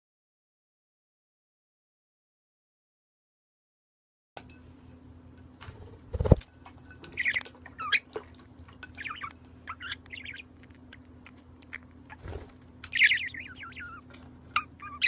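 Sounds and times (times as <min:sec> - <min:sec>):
parakeet warbling chirps: 0:07.2 - 0:08.1, 0:08.9 - 0:12.3, 0:12.9 - 0:15.0.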